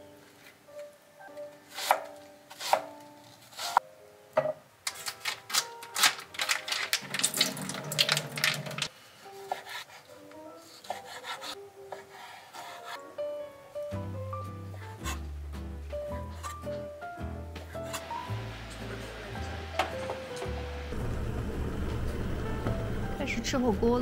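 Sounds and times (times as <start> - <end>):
soft background music: 0.0 - 21.0, 21.9 - 24.0
liquid splashing into sink: 7.0 - 8.9.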